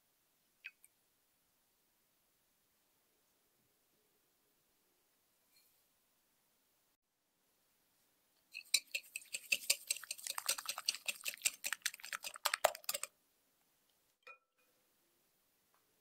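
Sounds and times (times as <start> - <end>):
whisk clicking against glass bowl: 8.6 - 13.1.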